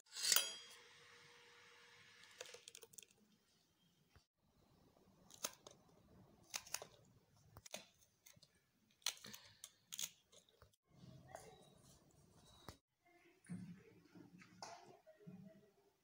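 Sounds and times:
scissors snipping: 0:06.4 - 0:10.7.

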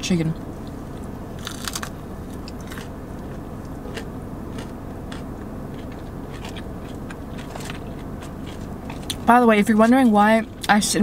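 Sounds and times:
biting crispy fried food: 0:01.4 - 0:09.2
chewing with crisp clicks: 0:02.4 - 0:09.2.

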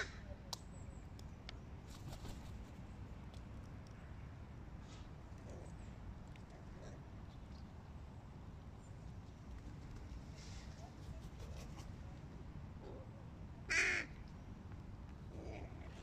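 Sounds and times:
crow cawing: 0:13.7 - 0:14.1.

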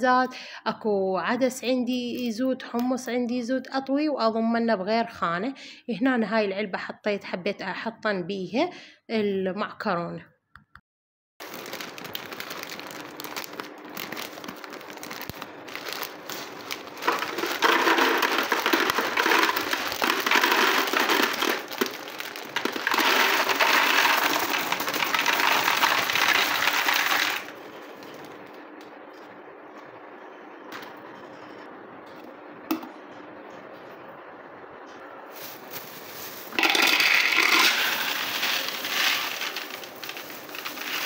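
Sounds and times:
pasta rattling into plastic jar: 0:11.4 - 0:27.6, 0:35.4 - 0:41.0
plastic packet crinkling: 0:11.4 - 0:28.6, 0:35.3 - 0:41.0.

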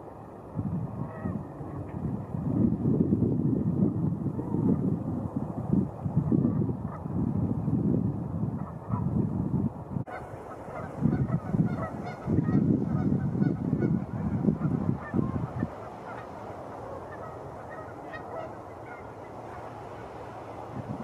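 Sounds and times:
wind buffeting microphone: 0:00.0 - 0:21.0
geese honking: 0:10.1 - 0:19.8.

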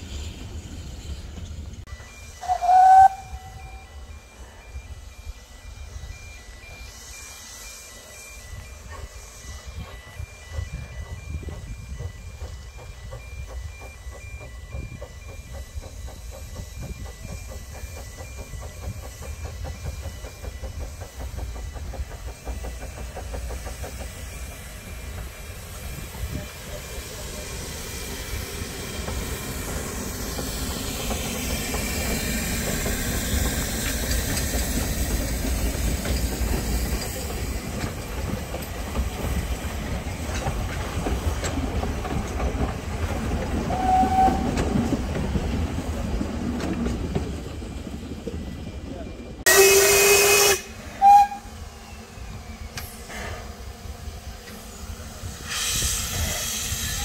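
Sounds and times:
hiss of steam: 0:00.0 - 0:46.4, 0:49.5 - 0:57.0
steam locomotive rumbling past: 0:00.0 - 0:57.0
carriages clicking over rail joints: 0:08.0 - 0:50.4.

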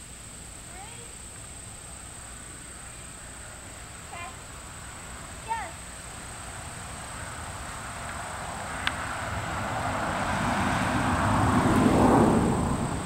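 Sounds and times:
insects chirring: 0:00.0 - 0:13.0
vehicle rushing by: 0:06.1 - 0:13.0.

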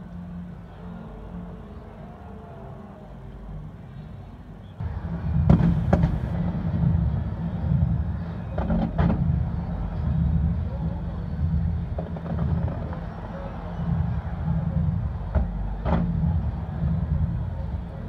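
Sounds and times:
distant fireworks booming: 0:04.8 - 0:10.6, 0:11.3 - 0:17.3.

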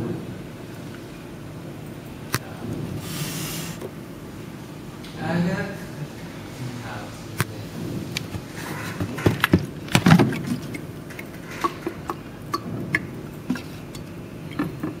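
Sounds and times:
water dripping into jug: 0:09.5 - 0:15.0.

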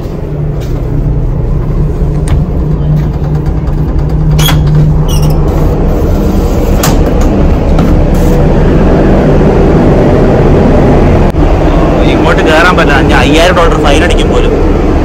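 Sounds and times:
ship engine rumble: 0:00.0 - 0:15.0.

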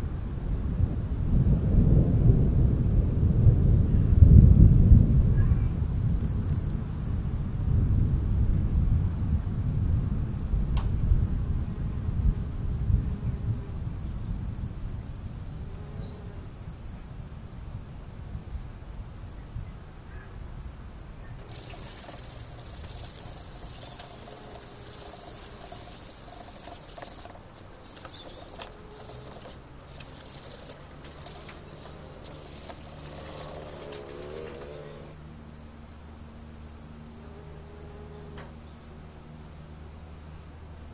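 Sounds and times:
crickets trilling: 0:00.0 - 0:40.9
sandpaper rubbing on metal hub: 0:21.4 - 0:35.0.

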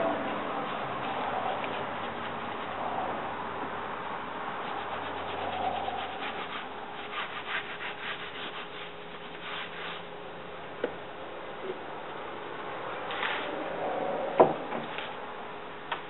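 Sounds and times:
hands rubbing pads on steel bar: 0:00.0 - 0:03.2, 0:04.6 - 0:10.1
quick brushing strokes: 0:00.0 - 0:03.4, 0:04.5 - 0:10.2.

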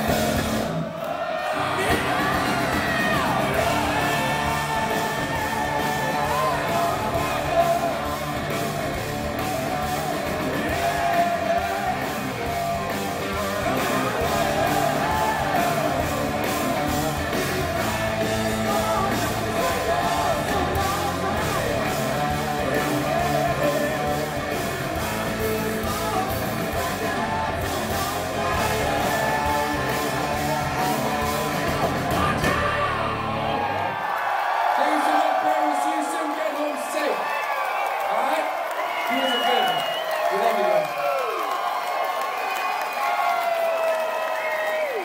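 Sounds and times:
hard rock band playing live: 0:00.0 - 0:00.9, 0:01.6 - 0:33.9
person singing: 0:01.5 - 0:33.7.

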